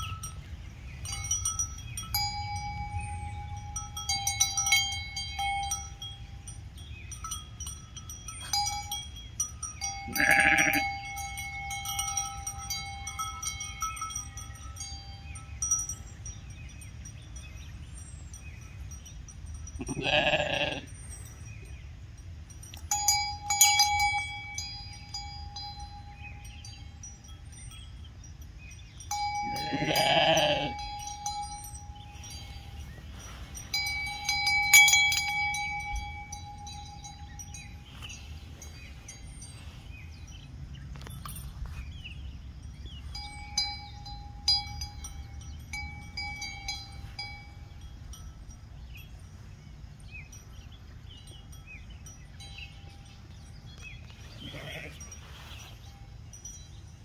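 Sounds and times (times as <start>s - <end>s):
small metal bell ringing: 0.0s - 57.0s
sheep bleating: 10.1s - 10.8s, 19.8s - 20.8s, 29.5s - 30.8s.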